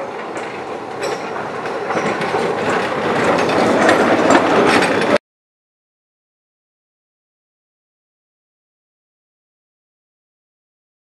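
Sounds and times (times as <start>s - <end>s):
rail joint clicks: 0.0s - 5.2s
tram wheels clattering over rails: 0.0s - 5.2s.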